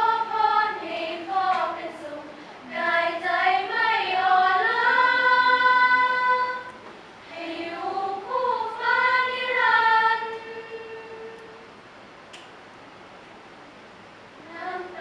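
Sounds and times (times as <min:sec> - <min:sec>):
women's choir singing: 0:00.0 - 0:11.7, 0:14.4 - 0:15.0.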